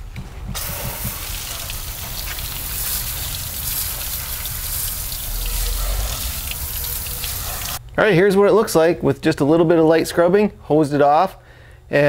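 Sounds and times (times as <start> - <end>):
hose water spraying on aluminum: 0.6 - 7.8
water splashing on ground: 0.6 - 7.8.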